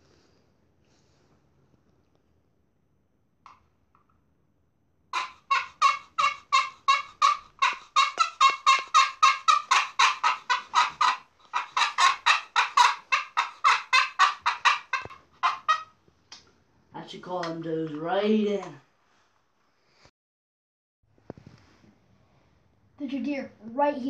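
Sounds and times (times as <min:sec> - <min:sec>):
friction turkey call yelps: 0:05.1 - 0:16.0.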